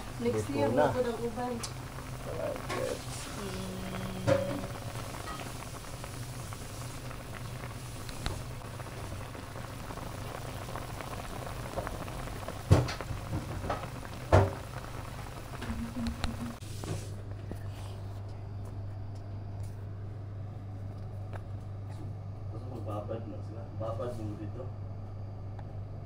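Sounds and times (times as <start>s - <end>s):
soup bubbling in a wok: 0.0s - 17.2s.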